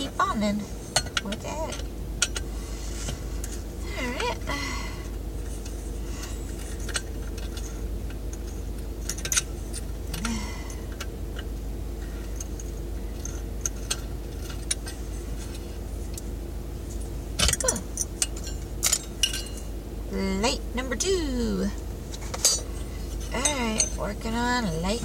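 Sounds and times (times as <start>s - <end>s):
car engine idling hum: 0.0s - 25.0s
metal parts clinking: 6.6s - 11.1s, 17.4s - 19.7s.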